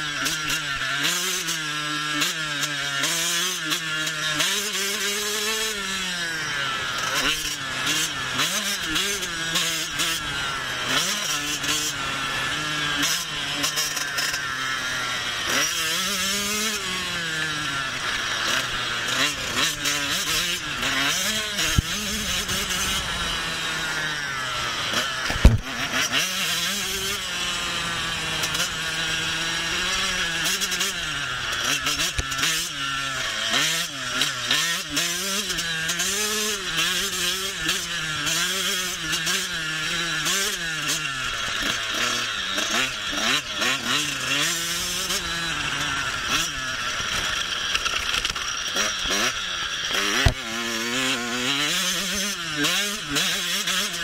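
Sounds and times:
motocross bike engine revving: 0.0 - 54.0
sharp knock: 25.3 - 25.7.

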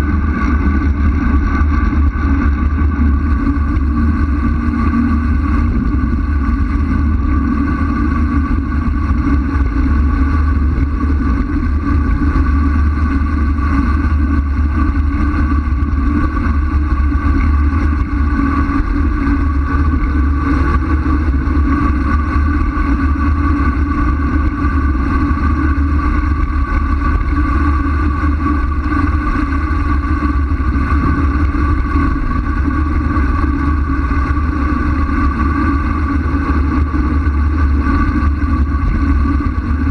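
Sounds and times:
steady whirring tone: 0.0 - 39.9
wind rumbling on microphone: 0.0 - 39.9.

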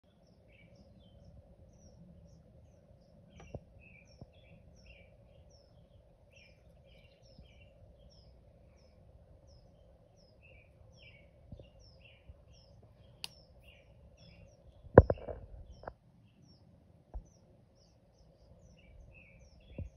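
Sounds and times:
faint bird chirping: 0.0 - 19.9
low steady background hum: 0.0 - 19.9
small click: 13.2 - 13.4.

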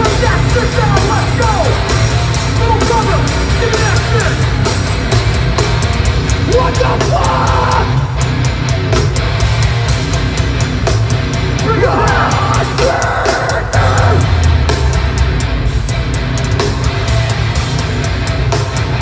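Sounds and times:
hardcore band playing live: 0.0 - 19.0
shouted vocal: 6.5 - 8.2, 11.6 - 14.5.

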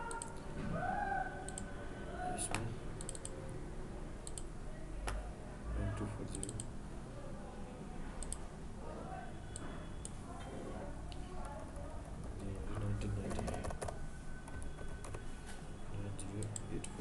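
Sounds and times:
computer mouse clicking: 0.0 - 0.4, 2.5 - 3.4, 4.2 - 5.2, 6.3 - 6.7, 8.2 - 8.4.

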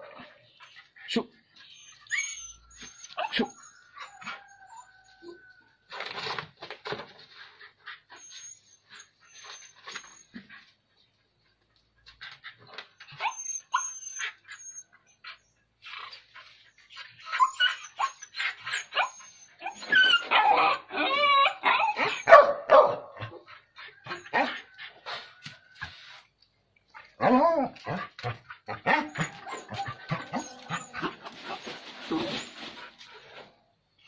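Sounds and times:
dog whining and yelping: 1.6 - 5.4, 7.7 - 10.7, 12.2 - 22.5, 27.0 - 33.4.

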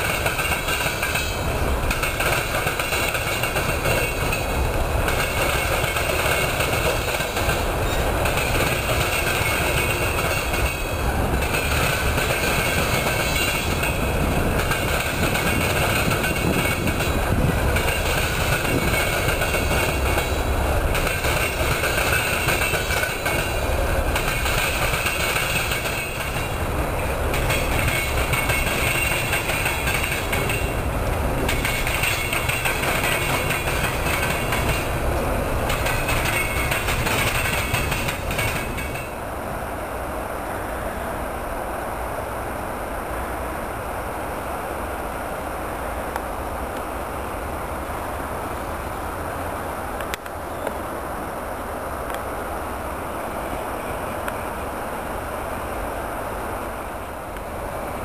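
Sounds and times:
train wheels clattering on tracks: 0.0 - 39.3
high grinding of train wheels: 0.0 - 39.4.

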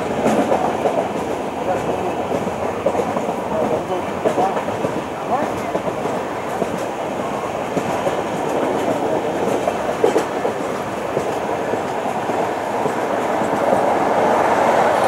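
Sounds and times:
train wheels rumbling on rails: 0.0 - 15.0.

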